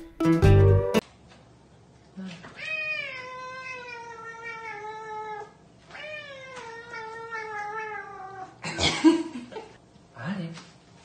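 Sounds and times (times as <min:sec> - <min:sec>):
cat yowling: 0:02.6 - 0:08.6.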